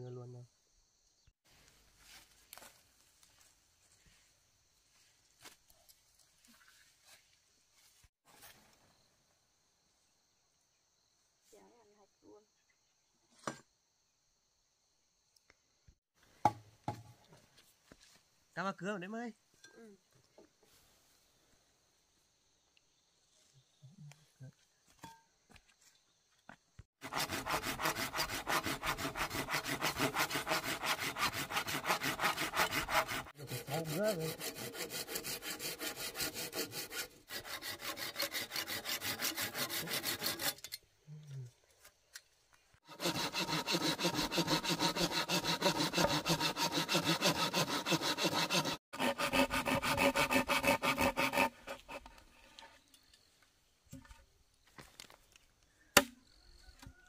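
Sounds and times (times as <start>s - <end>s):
hand saw cutting bamboo: 27.0s - 40.7s, 42.8s - 52.7s.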